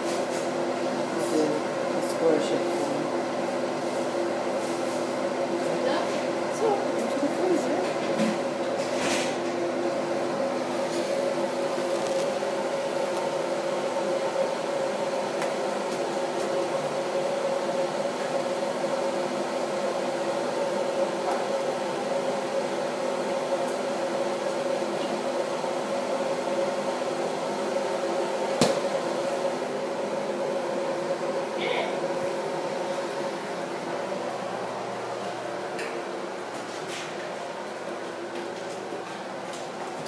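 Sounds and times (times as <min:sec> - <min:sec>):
mechanical hum of motor: 0:00.0 - 0:40.0.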